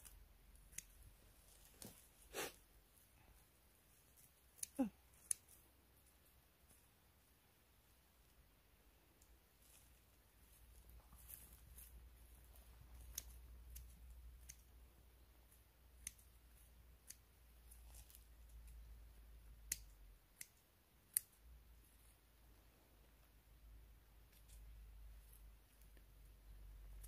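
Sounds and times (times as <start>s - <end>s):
faint sharp clicks and snaps: 0.0s - 2.0s, 12.9s - 14.9s, 15.8s - 21.6s.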